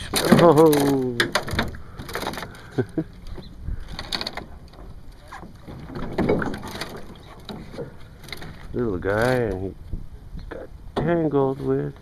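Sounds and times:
knocks and clattering in metal boat: 0:00.0 - 0:02.6, 0:03.3 - 0:09.3.

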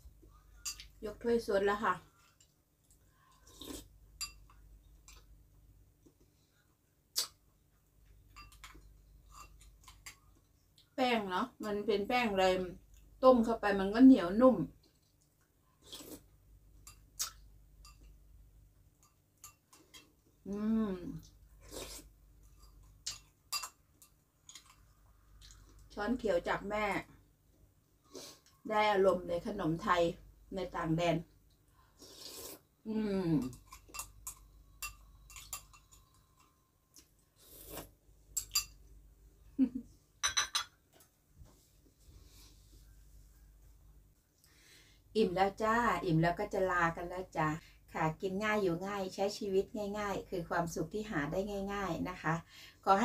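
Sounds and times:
spoon clinking on glass bowl: 0:08.3 - 0:09.6, 0:33.7 - 0:36.5, 0:40.2 - 0:40.8
slurps and mouth sounds: 0:37.4 - 0:38.0.

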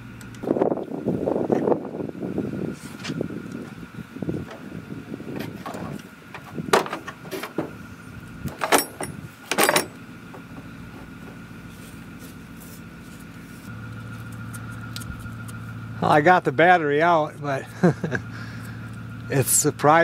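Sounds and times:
sharp clinks and knocks: 0:08.6 - 0:10.7
battery scraping against holder: 0:14.0 - 0:15.7.

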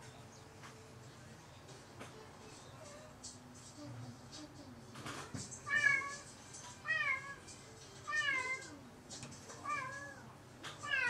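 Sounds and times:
cat meowing: 0:05.6 - 0:07.4, 0:08.1 - 0:08.7, 0:09.6 - 0:11.0.

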